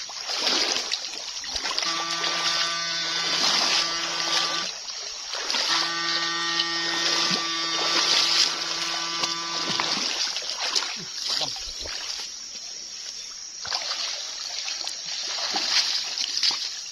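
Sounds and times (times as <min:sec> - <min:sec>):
water splashing around legs: 0:00.0 - 0:12.4, 0:13.6 - 0:16.9
electrofishing unit buzzing: 0:01.6 - 0:10.4.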